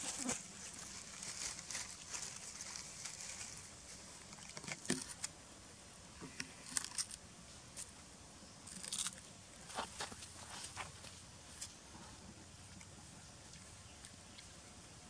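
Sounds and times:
monkeys crunching cucumbers: 0.0s - 5.3s, 6.3s - 7.2s, 8.7s - 10.8s, 12.6s - 14.6s.

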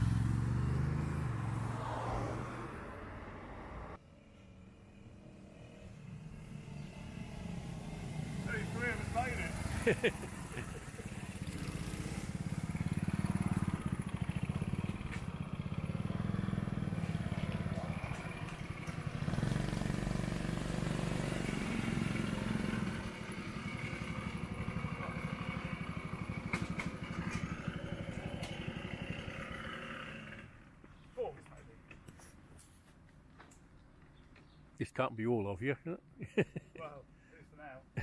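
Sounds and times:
mopeds riding past: 0.0s - 3.2s, 4.3s - 30.7s.

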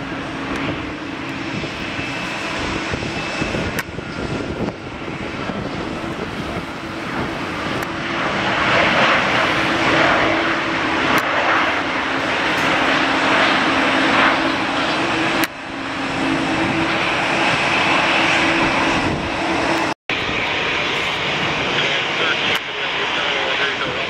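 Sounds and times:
airliner engine rush: 0.0s - 24.0s.

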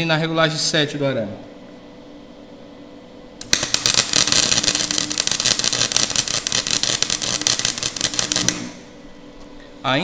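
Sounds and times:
welder crackling and popping: 3.4s - 9.0s.

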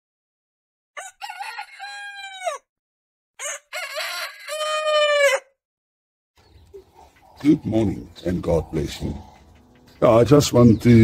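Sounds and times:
rooster crowing: 1.0s - 2.7s, 3.4s - 5.6s.

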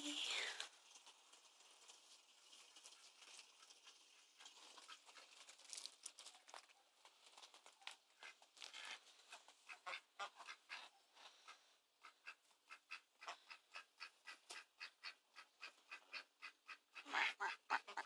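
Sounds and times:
faint crackles and clicks: 0.0s - 9.8s.

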